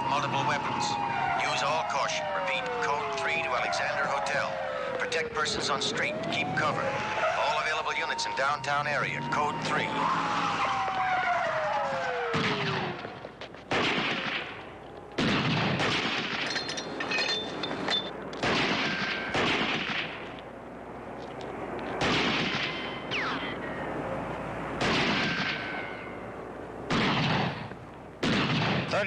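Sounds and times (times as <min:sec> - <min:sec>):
police siren winding down: 0:00.0 - 0:13.3
rifle shots echoing: 0:13.7 - 0:16.7, 0:18.4 - 0:20.3, 0:22.0 - 0:23.2, 0:24.8 - 0:26.0, 0:26.9 - 0:29.0.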